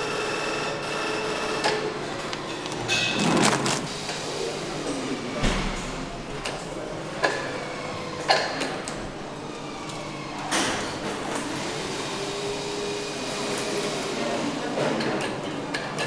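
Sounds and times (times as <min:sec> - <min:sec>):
workshop noise: 0:01.6 - 0:09.2.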